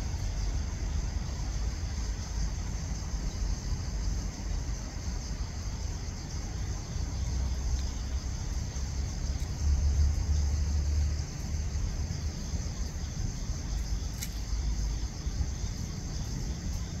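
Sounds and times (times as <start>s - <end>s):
low outdoor rumble: 0.0s - 17.0s
small click: 14.1s - 14.5s.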